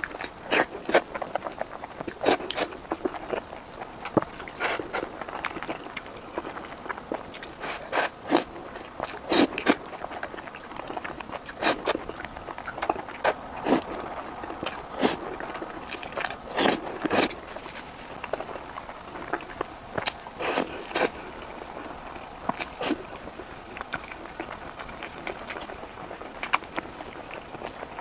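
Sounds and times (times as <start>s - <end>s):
soft chewing: 0.0s - 28.0s
wet slurps and bites: 4.0s - 18.6s.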